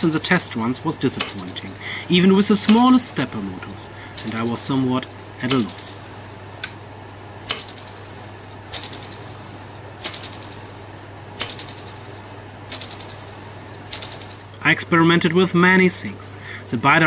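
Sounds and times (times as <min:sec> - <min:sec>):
engine low hum: 0:00.0 - 0:14.7
sharp clicks: 0:01.0 - 0:01.8, 0:02.4 - 0:04.8, 0:05.4 - 0:06.8, 0:07.4 - 0:14.5.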